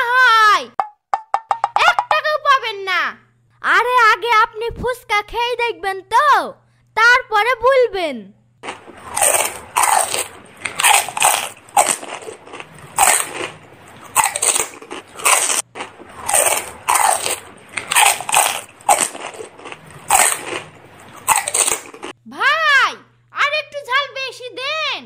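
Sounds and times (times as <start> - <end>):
crisp shells crunching: 8.6 - 22.2.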